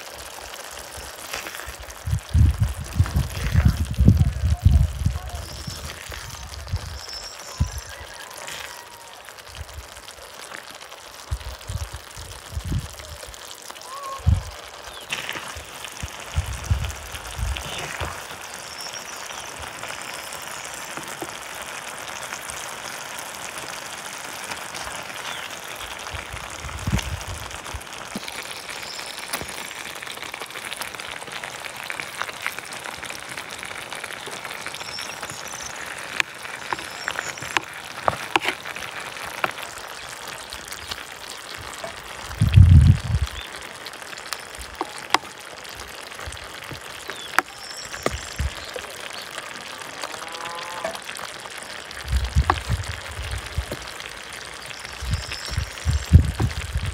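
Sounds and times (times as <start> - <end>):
sauce simmering and bubbling: 0.0 - 56.9.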